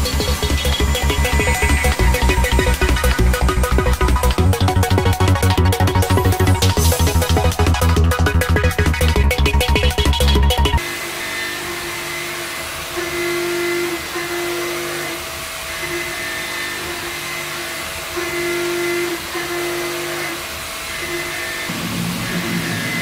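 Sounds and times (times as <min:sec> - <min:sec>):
milling cutter whirring hiss: 0:00.0 - 0:04.4, 0:10.8 - 0:23.0.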